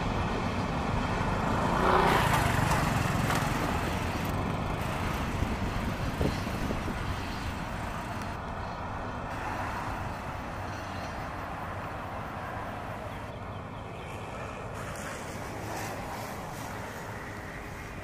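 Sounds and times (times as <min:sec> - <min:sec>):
train wheels rumbling on rails: 0:00.0 - 0:08.4
sharp clacks of train wheels: 0:02.1 - 0:08.4.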